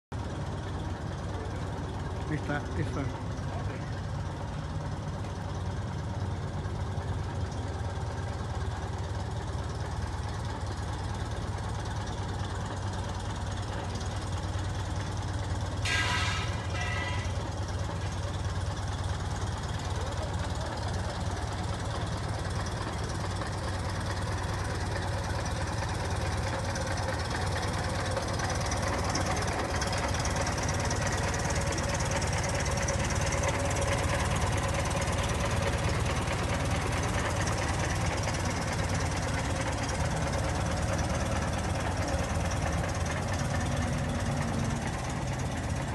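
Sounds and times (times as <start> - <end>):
car engine idling: 0.1 - 45.9.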